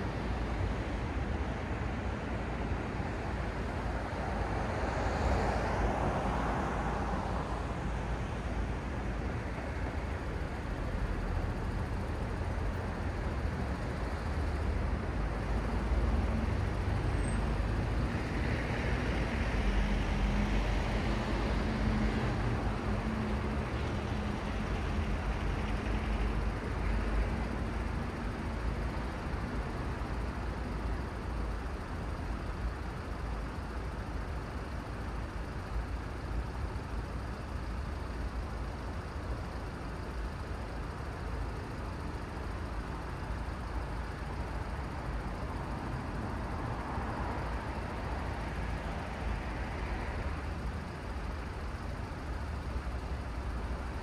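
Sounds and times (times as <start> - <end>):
road traffic noise: 0.0 - 54.0
vehicles passing: 44.4 - 54.0.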